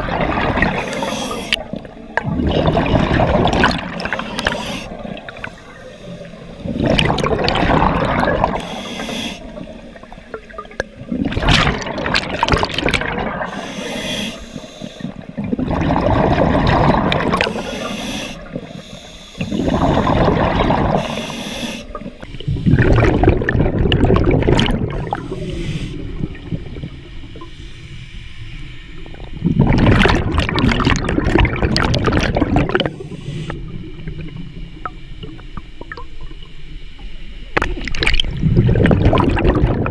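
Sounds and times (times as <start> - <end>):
underwater bubbles gurgling: 0.0 - 39.9
scuba inhalation: 0.4 - 2.0, 2.9 - 10.2, 13.2 - 23.5, 24.6 - 26.5, 32.1 - 33.8.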